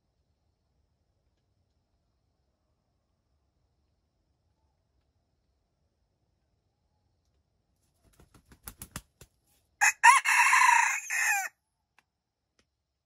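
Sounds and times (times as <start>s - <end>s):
rooster crowing: 9.8s - 11.5s.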